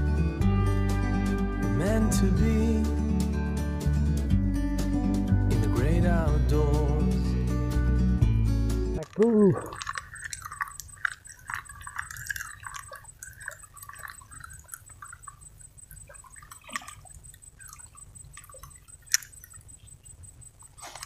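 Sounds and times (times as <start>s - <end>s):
water dripping and lapping: 9.0s - 21.0s
faint pulsing high tone: 9.4s - 21.0s.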